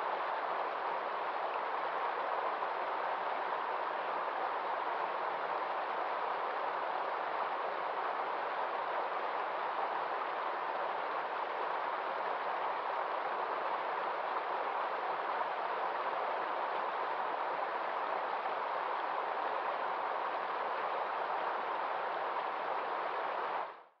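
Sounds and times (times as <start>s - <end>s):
stream rushing over rocks: 0.0s - 23.8s.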